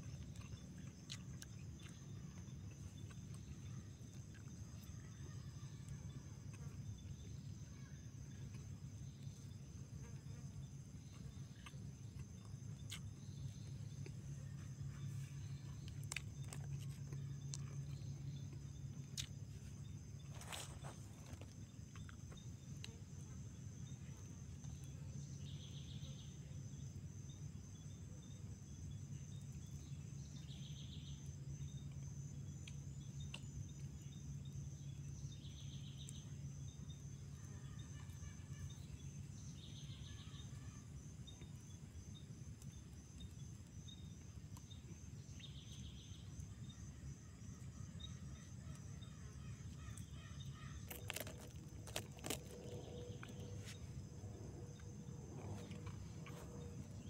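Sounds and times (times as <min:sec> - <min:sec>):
faint low hum: 0:00.0 - 0:57.0
insects trilling: 0:00.0 - 0:57.0.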